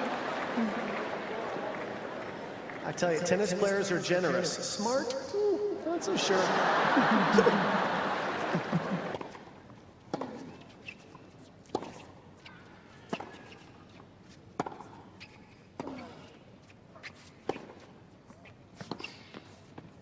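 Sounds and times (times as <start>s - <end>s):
tennis ball struck by rackets: 10.1s - 10.6s, 14.6s - 14.9s.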